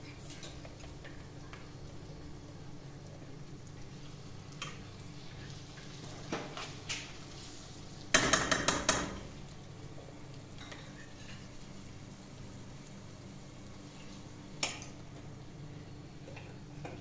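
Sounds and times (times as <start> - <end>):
utensils and dishes clinking: 10.5 - 11.5.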